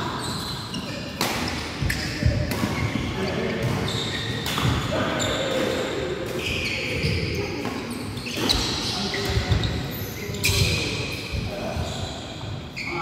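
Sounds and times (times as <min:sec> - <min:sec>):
shoes squeaking on wooden floor: 0:00.2 - 0:01.0, 0:02.8 - 0:05.6
rackets hitting shuttlecock: 0:01.1 - 0:04.9.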